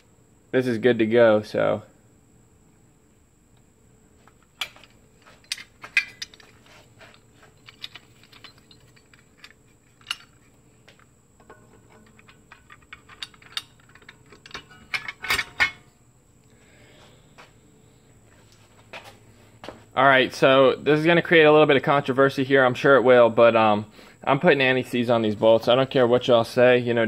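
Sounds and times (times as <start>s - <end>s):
metal clinks and clicks: 4.3s - 15.8s.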